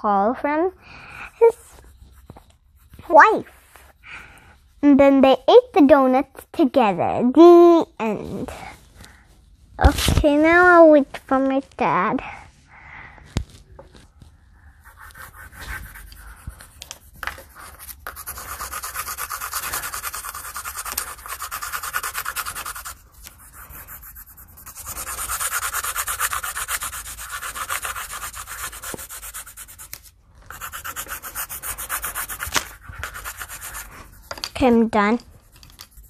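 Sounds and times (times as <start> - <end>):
pencil scribbling on paper: 14.8 - 36.0.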